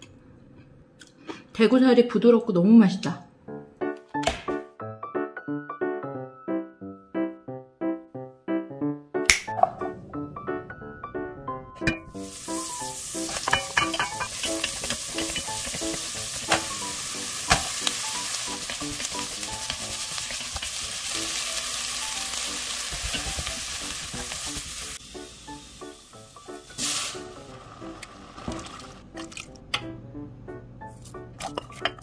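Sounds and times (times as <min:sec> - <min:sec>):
stock pouring into pot: 0:12.0 - 0:25.2
vegetables sizzling in a pot: 0:12.0 - 0:29.0.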